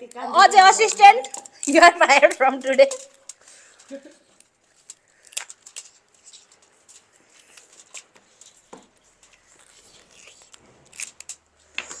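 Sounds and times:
utensils tapping: 0.0s - 8.9s.

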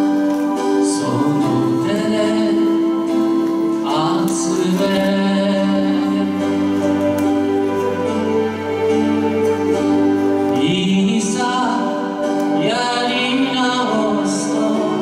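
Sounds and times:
karaoke backing track: 0.0s - 15.0s
man singing a slow ballad: 0.6s - 7.0s, 10.5s - 15.0s.

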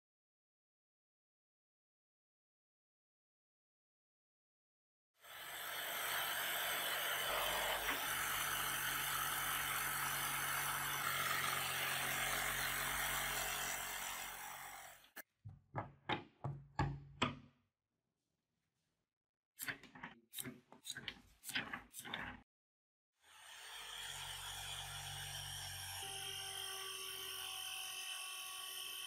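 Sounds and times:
jigsaw cutting wood: 5.2s - 15.2s, 23.2s - 29.0s
wooden pieces knocking: 15.5s - 17.5s.

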